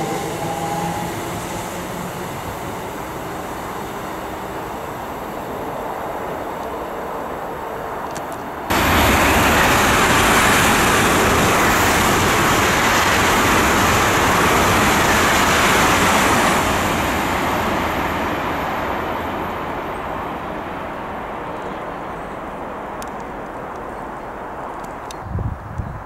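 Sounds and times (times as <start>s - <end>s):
train passing at speed: 0.0s - 26.0s.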